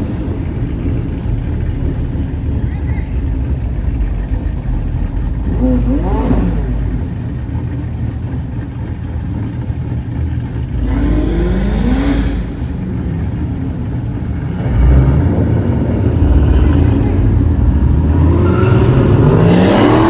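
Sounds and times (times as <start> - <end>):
car engines running: 0.0 - 20.0
deep loud rumble: 0.0 - 20.0
car accelerating hard: 3.2 - 20.0.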